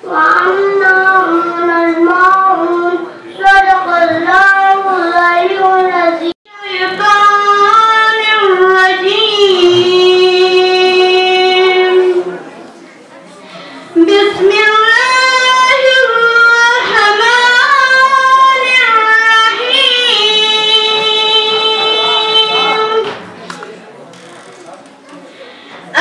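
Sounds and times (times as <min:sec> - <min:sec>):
high voice chanting recitation: 0:14.0 - 0:23.2.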